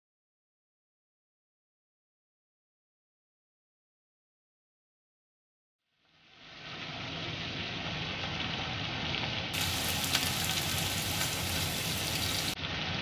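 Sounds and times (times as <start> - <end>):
food sizzling in frying pan: 6.1 - 13.0.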